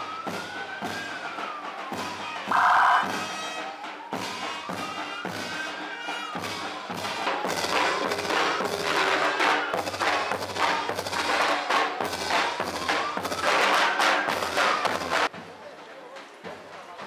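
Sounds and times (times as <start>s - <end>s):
siren wailing: 0.0s - 8.7s
marching drums beating: 0.0s - 17.0s.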